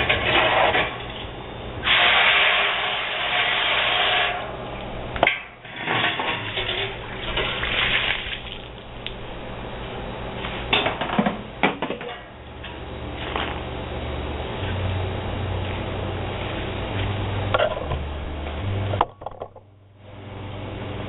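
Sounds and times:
hose spraying water into pot: 1.8 - 4.4, 6.4 - 8.8.

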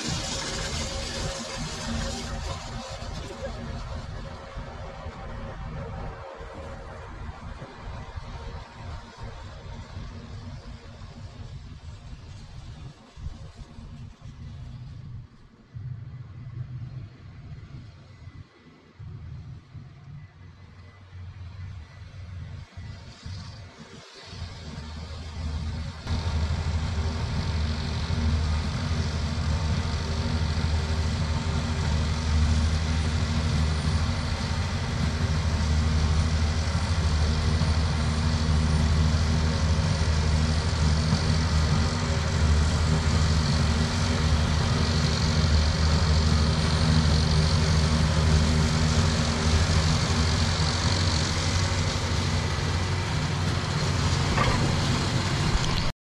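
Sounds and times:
tractor engine idling: 24.7 - 55.9.

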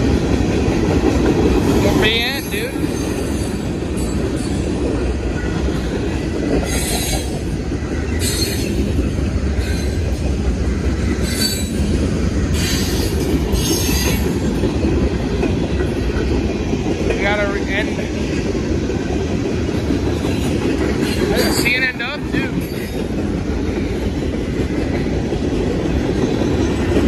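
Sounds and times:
train wheels rumbling on rail: 0.0 - 27.0
high-pitched wheel squeals: 8.2 - 8.9, 11.2 - 11.8.

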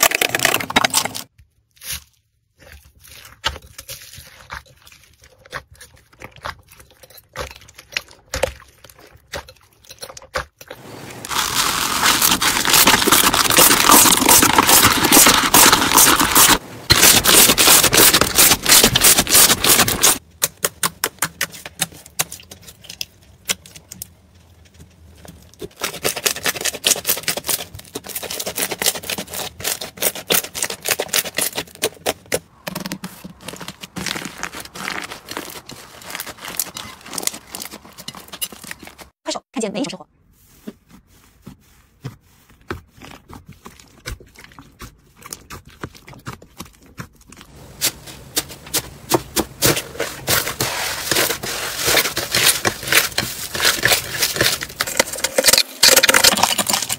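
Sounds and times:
slime crackling: 10.8 - 20.2, 32.5 - 38.0.

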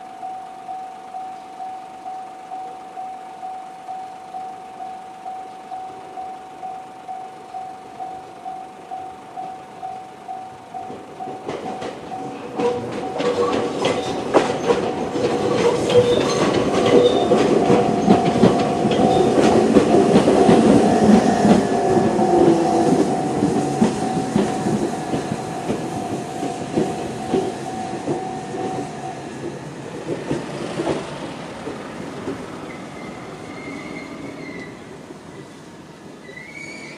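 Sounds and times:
level crossing bell ringing: 0.0 - 29.4
train wheels clicking over rail joints: 5.9 - 36.9.

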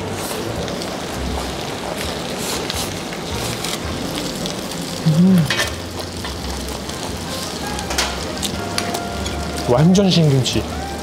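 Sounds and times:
meat sizzling on grill pan: 0.0 - 11.0
person humming: 5.0 - 5.6
cutlery clicks: 7.9 - 9.4.

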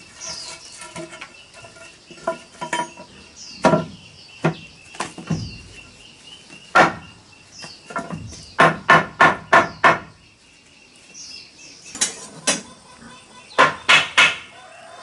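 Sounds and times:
small birds chirping: 0.0 - 15.0
machete knocking on bamboo: 3.6 - 5.6, 6.7 - 7.0, 7.9 - 10.1, 13.6 - 14.5.

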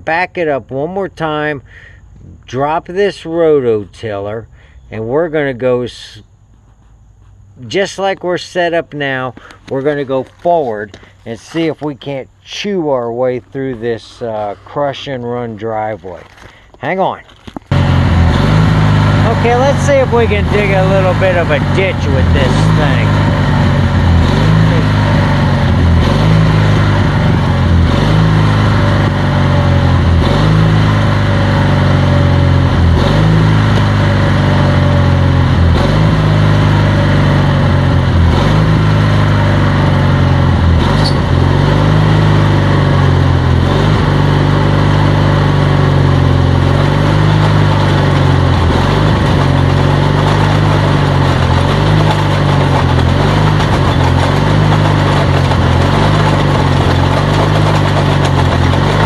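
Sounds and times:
rototiller digging into gravel: 9.4 - 59.0
small gasoline engine running: 16.1 - 59.0.

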